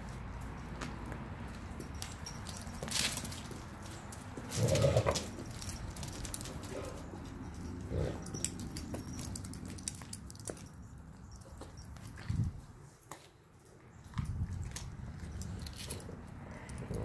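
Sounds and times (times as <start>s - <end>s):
dogs making low vocal sounds: 14.5s - 17.0s.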